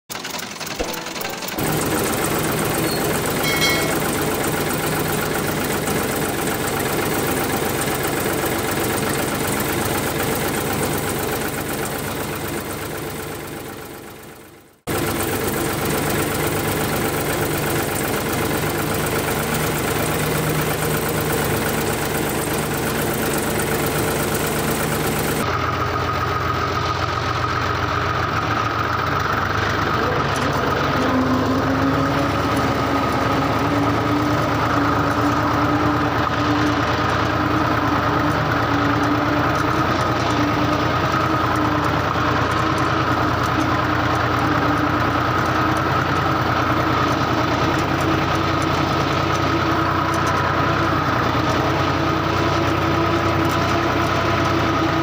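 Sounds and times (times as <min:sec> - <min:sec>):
engine idling: 0:00.1 - 0:55.0
steady higher whine: 0:00.8 - 0:04.6.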